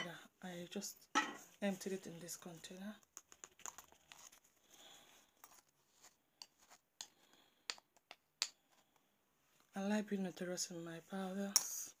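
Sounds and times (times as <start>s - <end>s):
spoon scraping: 3.2s - 7.5s.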